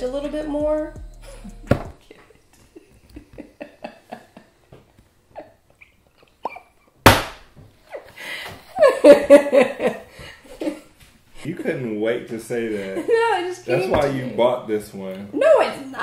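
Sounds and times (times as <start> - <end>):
woman laughing: 1.2 - 4.5, 8.8 - 10.9.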